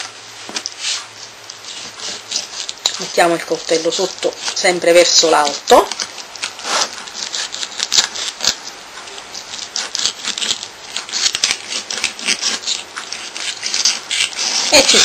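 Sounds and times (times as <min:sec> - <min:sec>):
knife scraping fish bones: 0:05.9 - 0:15.0.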